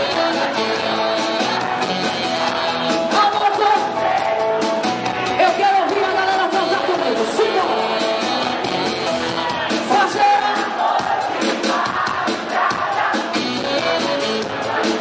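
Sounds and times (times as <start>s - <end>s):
electric bass: 0.0s - 5.4s
drums beating: 0.0s - 15.0s
live band playing amplified music: 0.0s - 15.0s
person singing: 5.2s - 10.8s.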